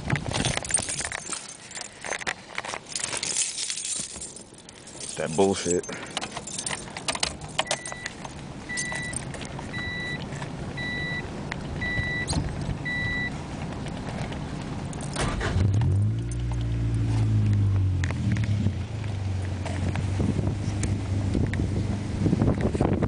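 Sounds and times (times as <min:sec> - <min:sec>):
car engine cranking and running: 0:00.1 - 0:23.0
keys jangling: 0:00.3 - 0:09.4, 0:14.9 - 0:16.7
dashboard warning chime beeping: 0:07.6 - 0:10.2, 0:10.8 - 0:13.3.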